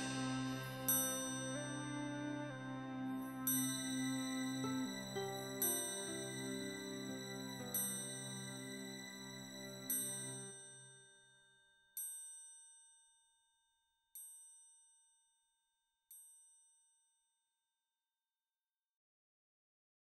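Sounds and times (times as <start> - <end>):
backing music: 0.0 - 10.5
bell ringing: 0.0 - 10.5.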